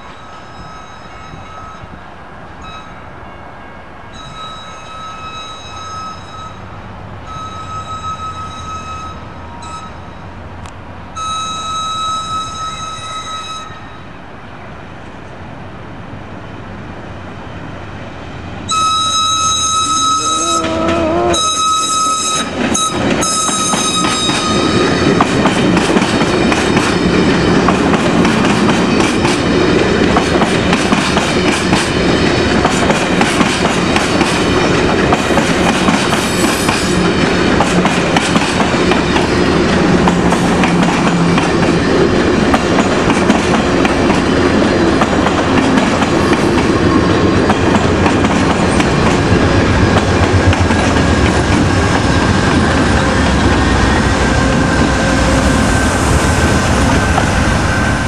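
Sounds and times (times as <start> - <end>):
train horn blasts: 18.7 - 24.8
train wheels clattering: 21.6 - 58.0.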